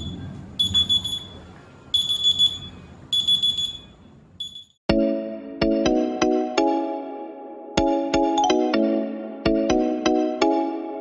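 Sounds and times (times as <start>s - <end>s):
smartphone alarm beeping: 0.0s - 4.8s.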